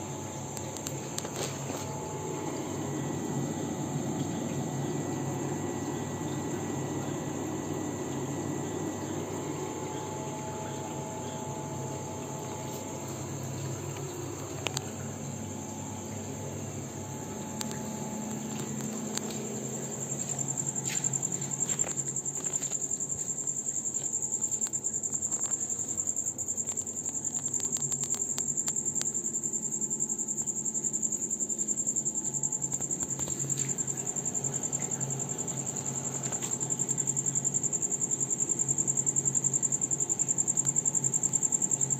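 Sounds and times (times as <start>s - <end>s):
low machine hum: 0.0s - 41.9s.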